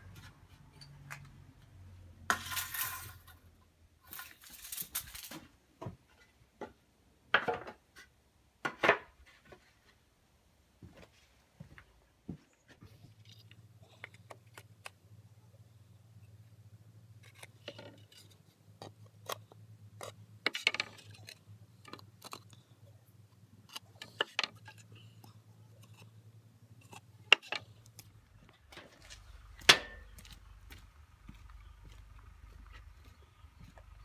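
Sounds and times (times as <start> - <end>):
wood boards and metal clinking: 20.0 - 22.5, 23.7 - 25.2, 26.8 - 30.3.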